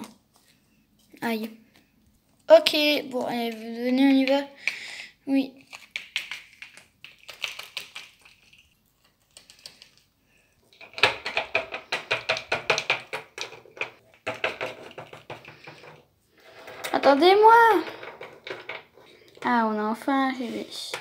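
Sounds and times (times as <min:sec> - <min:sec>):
plastic toys tapping on wood: 0:10.8 - 0:16.0.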